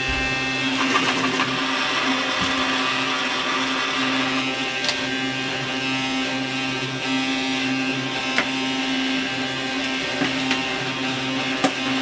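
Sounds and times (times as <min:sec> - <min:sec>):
toy vacuum motor whirring: 0:00.0 - 0:12.0.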